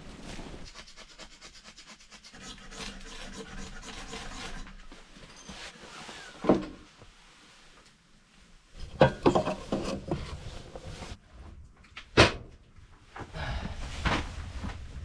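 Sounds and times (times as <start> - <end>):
rustling and shuffling: 0.0 - 0.7, 4.7 - 15.0
wooden knocks and clatter: 8.8 - 12.6.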